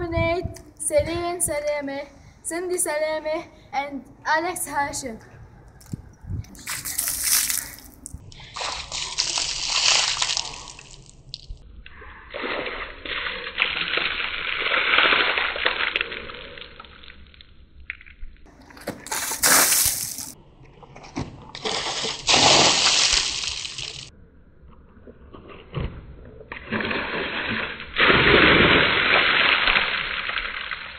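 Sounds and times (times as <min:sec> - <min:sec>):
water splashing over a person: 0:06.6 - 0:11.6, 0:12.2 - 0:17.1, 0:19.0 - 0:20.4, 0:21.5 - 0:24.1, 0:26.5 - 0:30.9.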